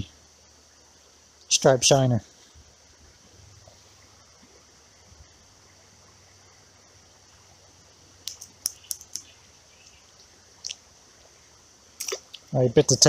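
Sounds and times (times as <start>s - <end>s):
creek trickling: 0.0s - 13.0s
sharp clicks of fish hook: 8.2s - 10.0s.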